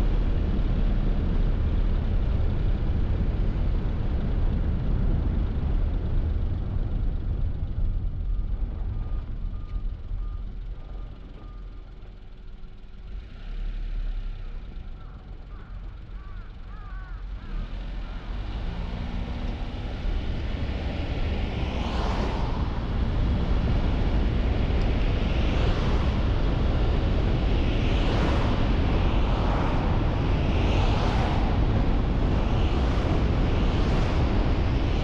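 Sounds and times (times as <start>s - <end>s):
car engine and road rumble: 0.0s - 35.0s
wind on microphone: 18.0s - 35.0s.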